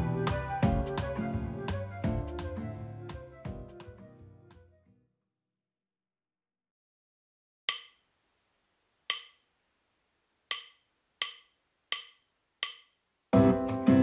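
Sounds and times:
sharp wood-block knocks: 0:09.1 - 0:09.4, 0:10.5 - 0:13.0.

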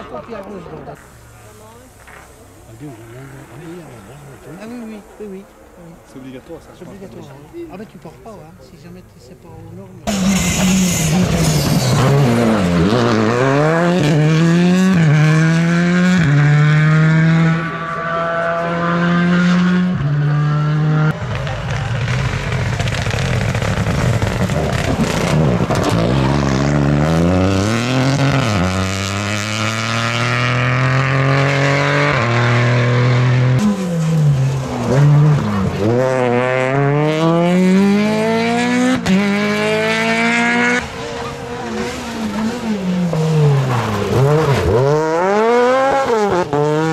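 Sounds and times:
car engine accelerating through gears: 0:10.0 - 0:46.9.

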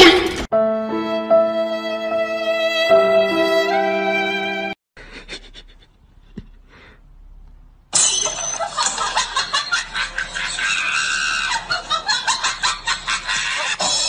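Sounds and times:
person laughing and shrieking: 0:10.2 - 0:13.9.

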